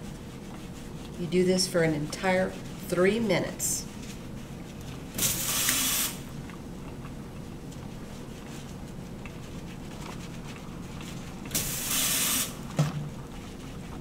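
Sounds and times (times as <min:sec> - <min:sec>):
faucet water spraying onto hands: 0:05.2 - 0:06.2, 0:11.5 - 0:12.5.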